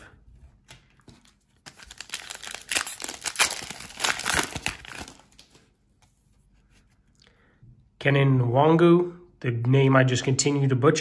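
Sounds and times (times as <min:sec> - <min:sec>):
foil wrapper crinkling and tearing: 0:01.2 - 0:05.6.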